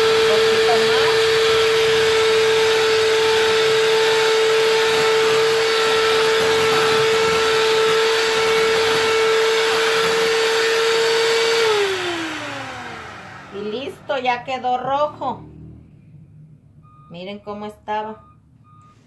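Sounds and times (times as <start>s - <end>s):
electric hand mixer whining: 0.0s - 15.0s.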